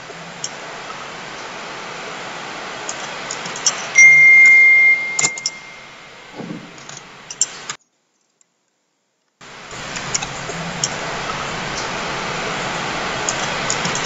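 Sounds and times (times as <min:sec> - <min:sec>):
steady hiss: 0:00.0 - 0:07.8, 0:09.4 - 0:14.0
high-pitched beep: 0:04.0 - 0:05.9.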